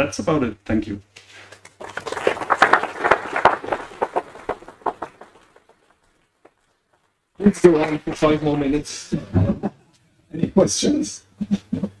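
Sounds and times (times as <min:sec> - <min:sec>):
audience applauding: 0:01.6 - 0:06.5, 0:07.4 - 0:08.8.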